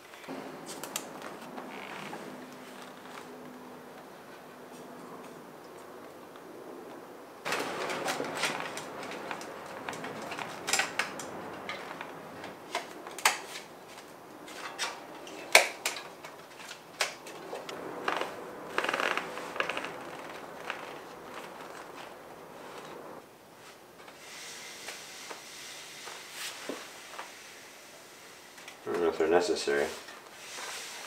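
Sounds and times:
rustling handling: 7.5s - 23.8s.

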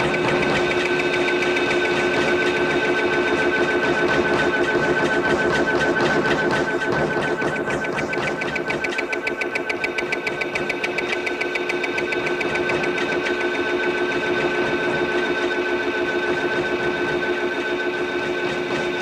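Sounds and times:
machine clattering: 0.0s - 13.5s
steady hum of held tones: 0.0s - 19.0s.

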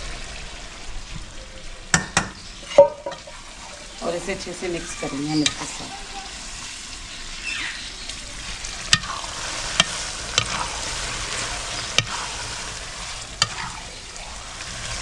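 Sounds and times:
frying sizzle: 0.0s - 15.0s
metal ladle stirring in pan: 8.8s - 13.9s.

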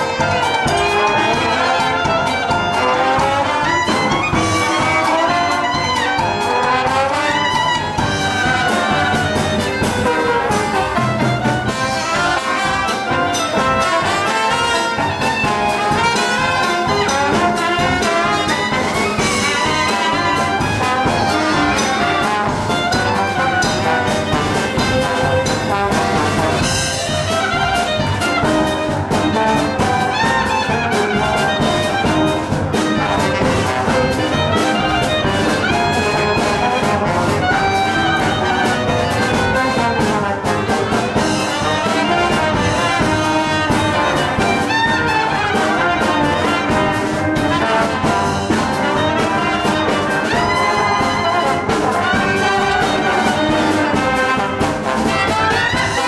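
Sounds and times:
swing band playing: 0.0s - 56.0s.

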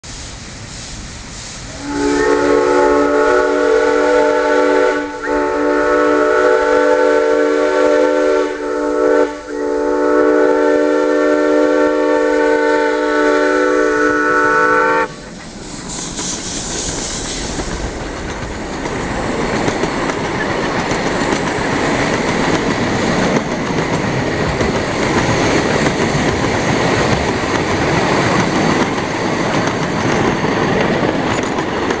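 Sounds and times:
steam hiss: 0.0s - 32.0s
train cars rumbling and rattling: 0.0s - 32.0s
steam whistle: 1.7s - 15.3s.

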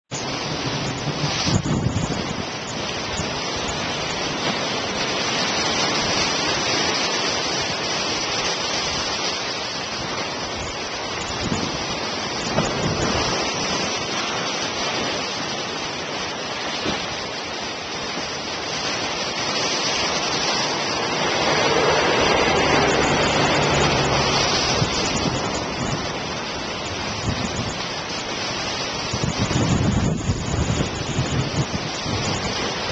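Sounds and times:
surf breaking on sea wall: 0.2s - 32.9s
diesel locomotive hum: 20.6s - 27.1s.

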